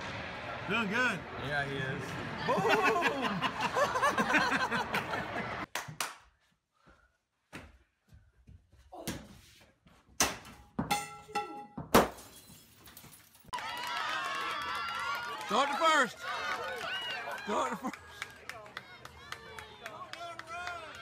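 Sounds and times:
basketball thudding on walls and floor: 10.1s - 12.4s
hollow ping of bounces: 10.8s - 12.0s.

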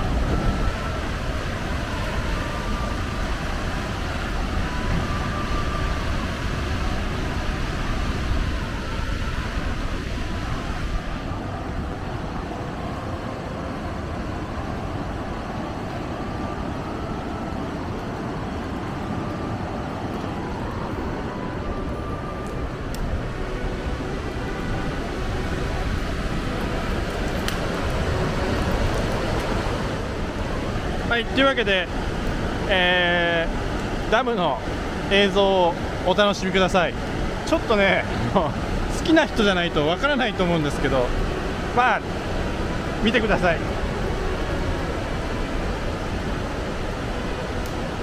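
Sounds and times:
wind buffeting microphone: 0.0s - 32.7s
dam discharge rushing water: 0.0s - 48.0s
river rushing: 0.0s - 48.0s.

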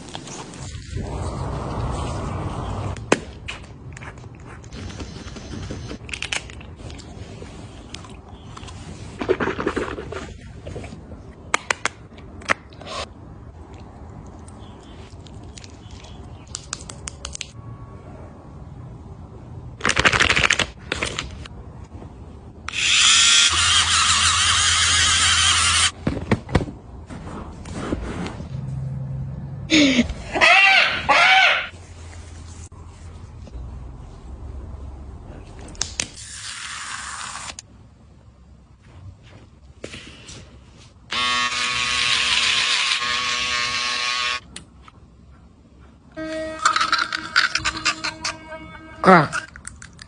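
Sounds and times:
electric buzz: 41.1s - 44.5s
short tone: 46.2s - 49.5s.

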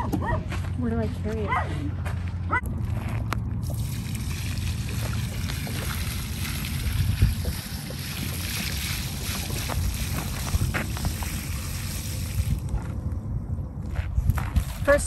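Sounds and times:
wind buffeting microphone: 0.0s - 15.0s
water pouring onto ground: 3.6s - 12.7s.

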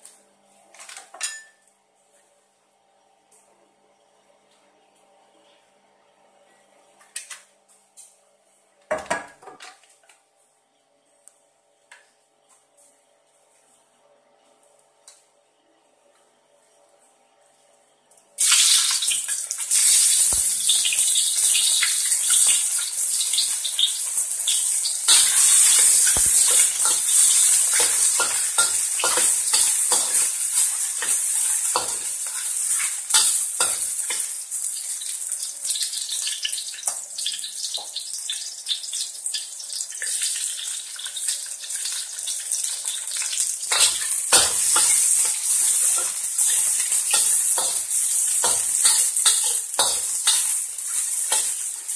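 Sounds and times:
oil sizzling and crackling in a wok: 18.4s - 51.9s.

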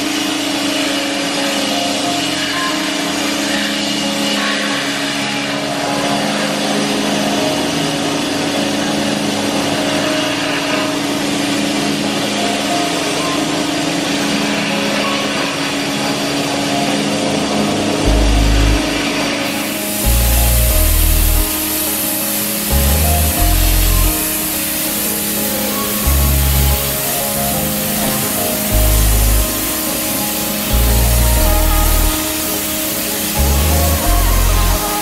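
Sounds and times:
low hum: 17.5s - 22.0s, 22.7s - 24.6s, 26.0s - 30.0s, 30.6s - 32.7s, 33.4s - 35.0s
sandblasting hiss against metal: 19.5s - 35.0s.

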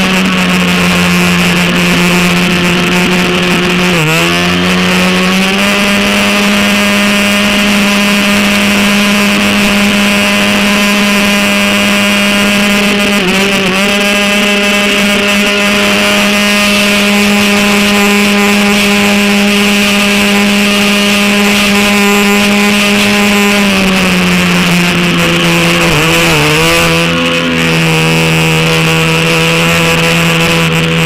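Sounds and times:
model boat motor humming: 0.0s - 31.0s.

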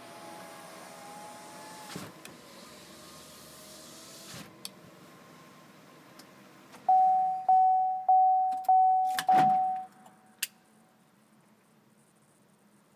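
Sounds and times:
car warning chime: 6.9s - 9.9s.

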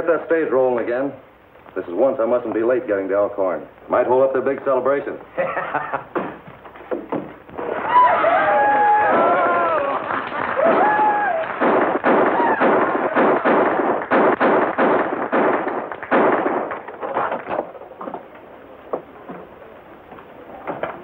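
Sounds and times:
crowd noise: 7.3s - 14.8s
firecrackers going off: 8.8s - 17.9s.

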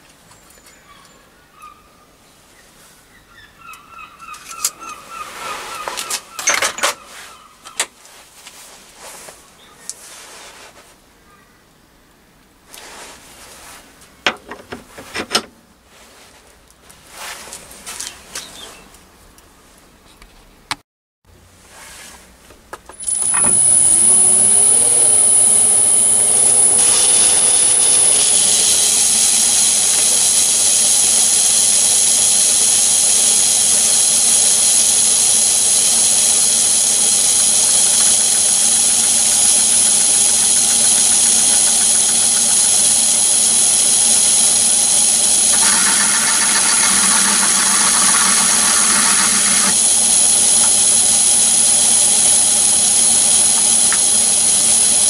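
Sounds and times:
high cutting whine: 22.9s - 55.0s
lathe running: 23.0s - 55.0s
rough cutting sound: 23.0s - 55.0s.

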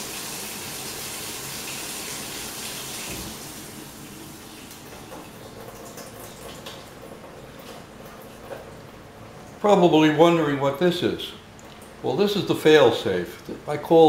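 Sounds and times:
faucet running into metal sink: 0.0s - 7.2s
water dripping: 1.1s - 9.6s, 11.5s - 12.0s.

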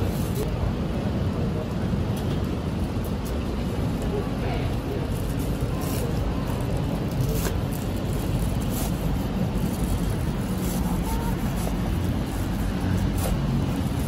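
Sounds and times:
street traffic rumble: 0.0s - 14.0s
cleaver cutting crispy dough: 7.2s - 14.0s.

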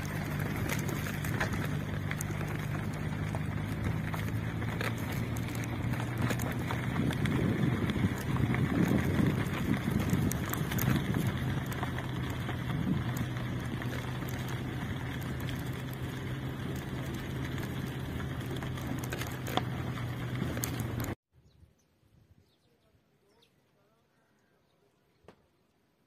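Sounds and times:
faint bird chirps: 21.4s - 25.8s.

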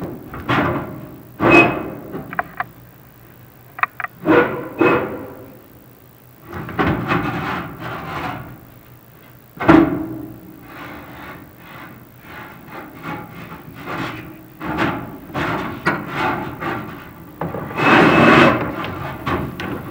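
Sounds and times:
scraping inside metal pipe: 10.7s - 19.5s.

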